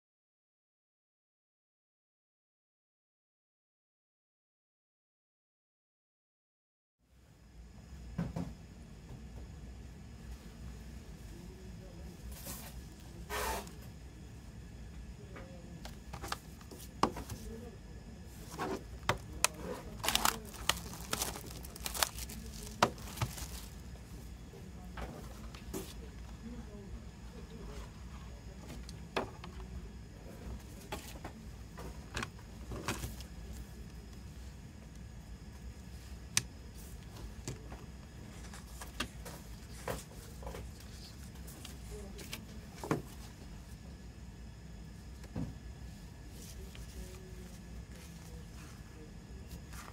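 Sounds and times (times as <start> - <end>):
low steady hum: 7.0 - 49.9
cellophane wrap crinkling: 19.1 - 23.8.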